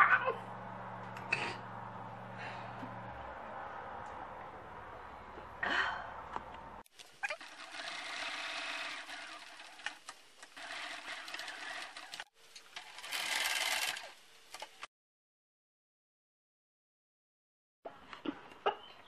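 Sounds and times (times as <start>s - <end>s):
sewing machine stitching: 7.3s - 14.1s.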